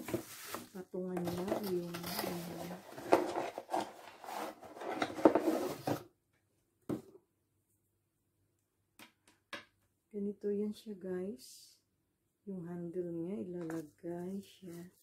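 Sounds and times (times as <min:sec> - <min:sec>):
plastic packaging rustling: 0:00.0 - 0:06.0.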